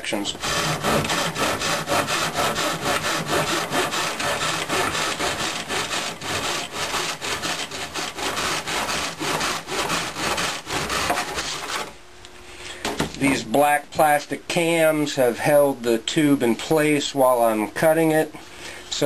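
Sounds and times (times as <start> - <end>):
pull saw cutting paper tube: 0.1 - 12.0.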